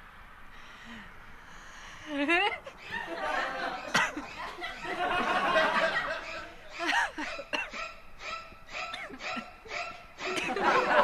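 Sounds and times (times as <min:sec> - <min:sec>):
people laughing and chuckling: 0:02.2 - 0:07.8, 0:10.2 - 0:11.0.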